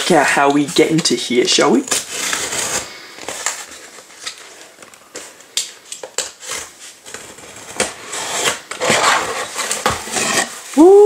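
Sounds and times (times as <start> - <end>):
box cutter slicing tape: 6.2 - 10.6.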